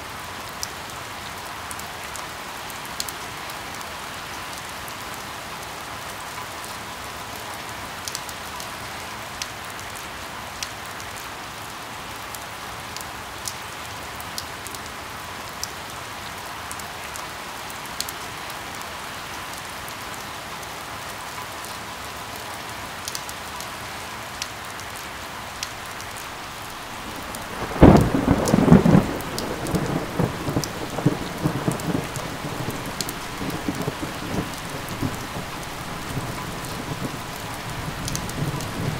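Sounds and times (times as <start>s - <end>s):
rain falling: 0.0s - 38.9s
thunder clap rumbling: 26.3s - 38.9s.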